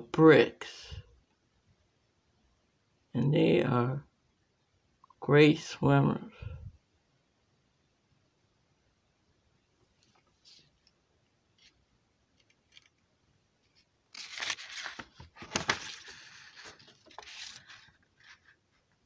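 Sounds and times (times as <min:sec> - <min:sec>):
paper rustling and crinkling: 0:12.4 - 0:13.0, 0:13.6 - 0:19.0.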